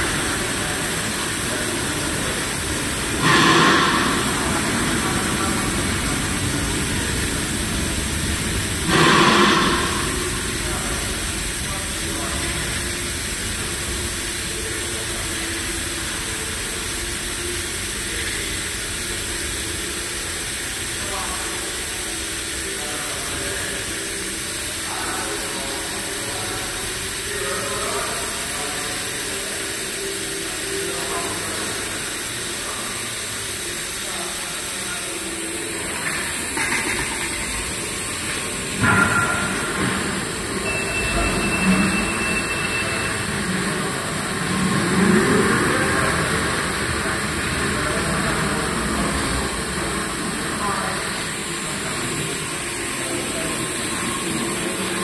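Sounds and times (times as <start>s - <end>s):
faint indistinct voices: 0.0s - 55.0s
industrial hall hum: 0.0s - 55.0s
thin high tone: 21.0s - 55.0s.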